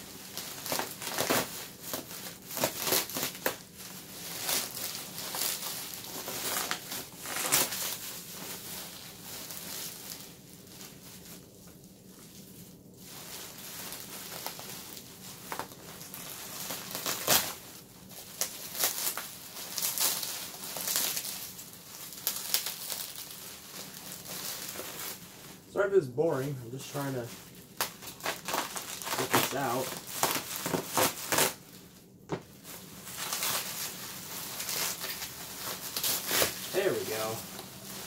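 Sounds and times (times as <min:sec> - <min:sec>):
plastic wrap crinkling: 0:00.0 - 0:38.0.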